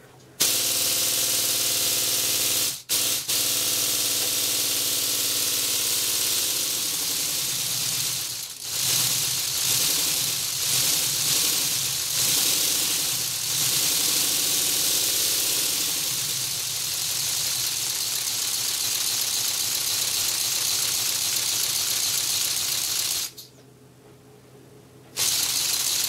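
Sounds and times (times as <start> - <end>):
compressed air hissing: 4.3 - 23.5, 25.2 - 26.0
fast plastic rattle: 6.2 - 14.3, 15.1 - 23.6, 25.2 - 26.0.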